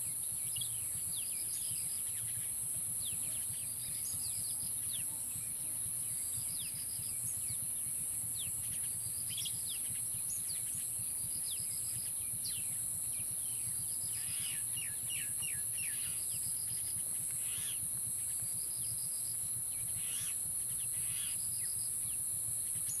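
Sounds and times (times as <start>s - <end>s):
high-pitched insect drone: 0.0s - 23.0s
birds chirping: 0.1s - 23.0s.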